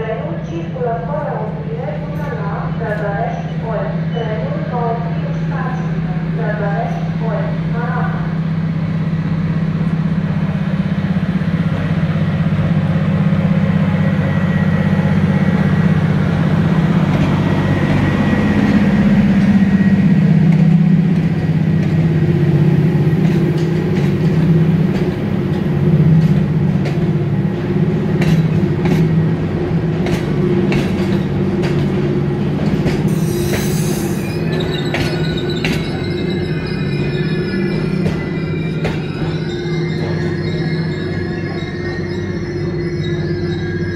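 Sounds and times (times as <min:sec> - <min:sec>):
locomotive low hum: 0:00.8 - 0:43.9
train wheel clicks: 0:30.0 - 0:33.8.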